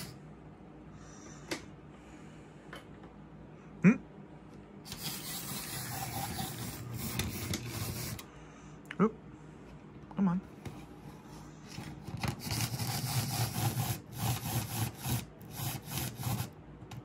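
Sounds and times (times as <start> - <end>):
model locomotive grinding running: 12.4 - 16.5.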